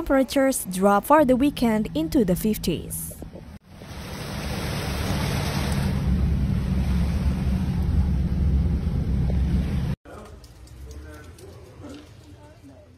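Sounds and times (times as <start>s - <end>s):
low engine hum: 3.1s - 10.0s
water rushing and splashing: 3.6s - 10.0s.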